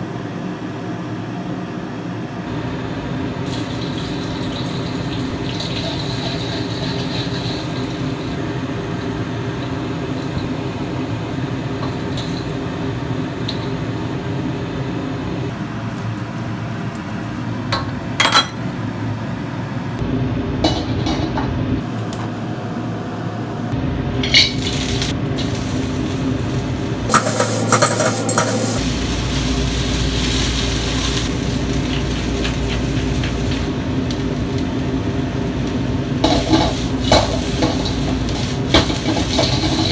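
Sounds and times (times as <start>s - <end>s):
garlic frying in hot oil: 3.4s - 13.0s, 24.6s - 39.9s
steady hum: 7.7s - 39.9s.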